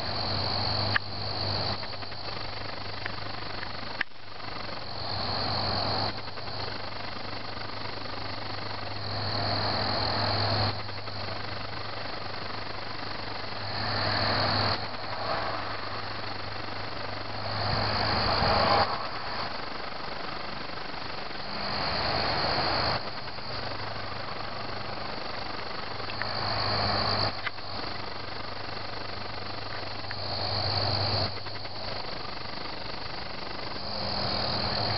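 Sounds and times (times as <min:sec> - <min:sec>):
crickets chirping: 0:00.0 - 0:34.9
steady low hum: 0:00.0 - 0:34.9.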